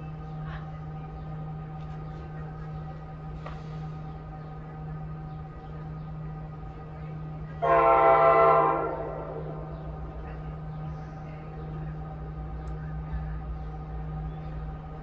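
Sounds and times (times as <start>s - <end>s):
low hum: 0.0s - 15.0s
train horn blast: 7.6s - 9.7s.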